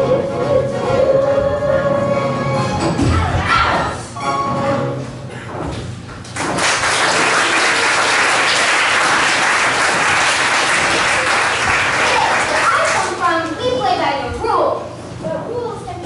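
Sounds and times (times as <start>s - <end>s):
audience applause: 6.3s - 13.2s.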